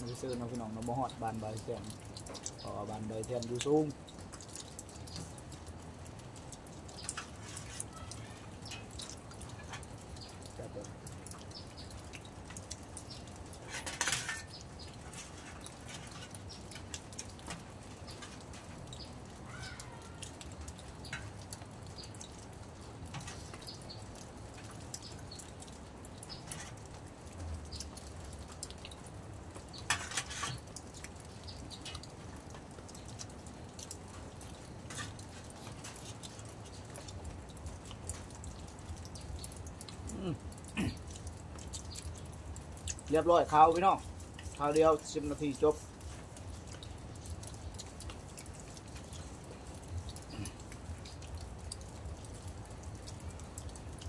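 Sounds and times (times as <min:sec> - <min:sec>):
hands and spoon on metal tray: 0:13.6 - 0:18.6, 0:29.9 - 0:30.7.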